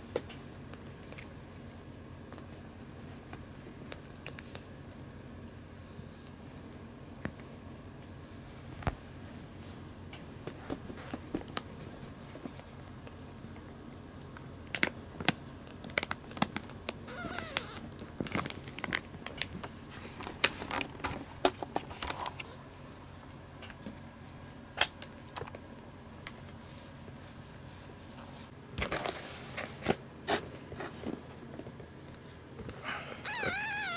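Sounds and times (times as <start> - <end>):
high squeaky gliding sound: 33.3 - 33.9.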